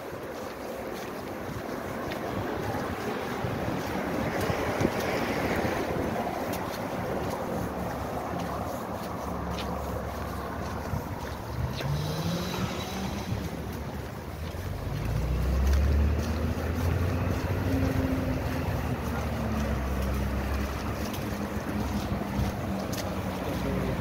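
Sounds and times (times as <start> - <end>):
vehicle engines passing: 0.0 - 24.0
wind noise on microphone: 0.0 - 24.0.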